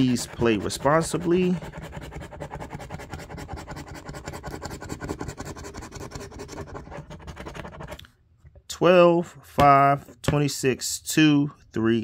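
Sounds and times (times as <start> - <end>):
coin scratching lottery ticket: 0.0 - 8.0.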